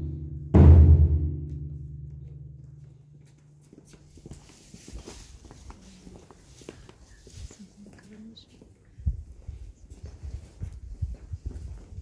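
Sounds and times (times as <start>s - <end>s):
large drum boom: 0.0s - 2.5s
footsteps on stone paving: 2.1s - 12.0s.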